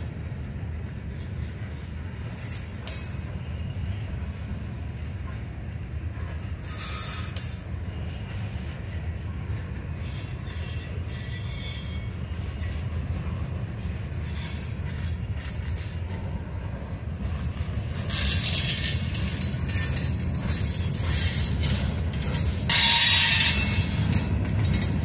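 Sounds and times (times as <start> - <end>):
train wheels rumbling on rails: 0.0 - 25.0
high wheel screech: 6.6 - 7.6, 10.0 - 12.8.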